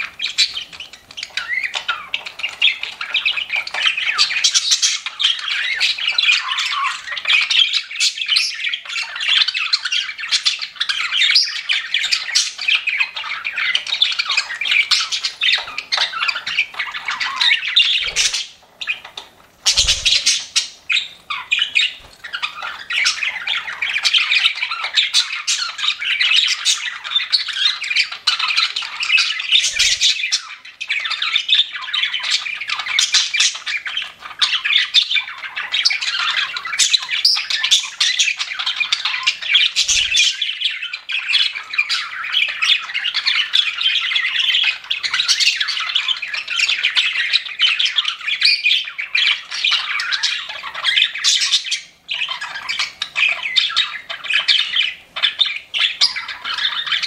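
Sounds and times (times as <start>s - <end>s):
budgerigars chattering: 0.0s - 57.0s.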